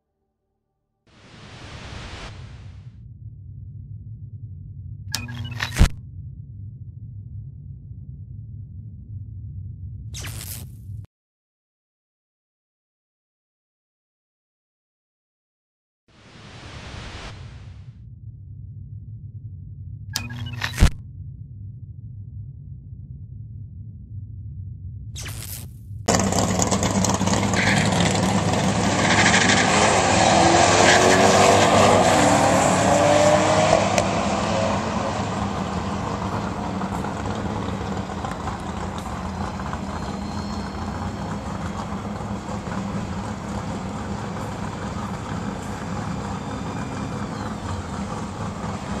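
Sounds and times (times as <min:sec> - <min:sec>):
car engines revving hard: 0:26.1 - 0:49.0.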